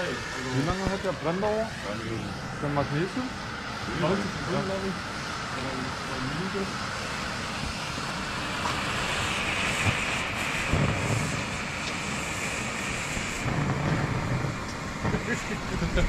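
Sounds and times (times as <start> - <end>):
flares hissing: 0.0 - 16.0.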